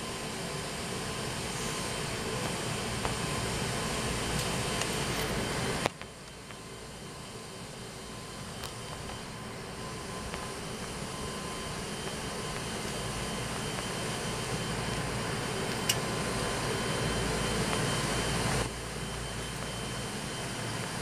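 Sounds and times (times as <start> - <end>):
turboprop engines droning: 0.0 - 21.0.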